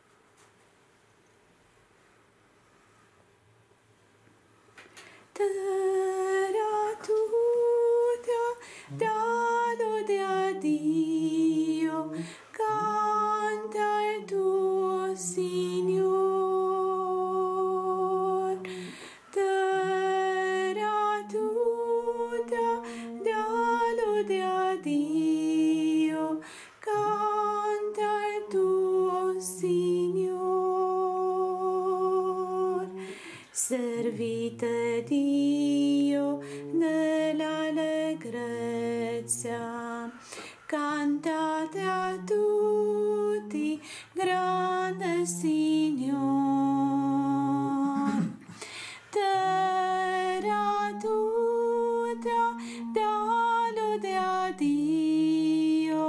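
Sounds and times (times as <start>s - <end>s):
voices singing hymn in harmony: 5.4s - 56.0s
singers breathing: 8.6s - 9.0s, 12.1s - 12.6s, 18.6s - 19.4s, 26.4s - 26.9s, 33.0s - 33.6s, 36.4s - 36.7s, 40.1s - 40.8s, 43.8s - 44.2s, 48.4s - 49.2s, 52.6s - 52.9s.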